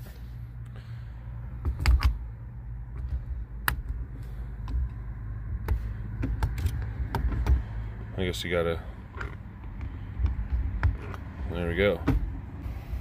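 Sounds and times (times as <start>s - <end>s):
dull knocks of parts handled: 5.6s - 7.8s.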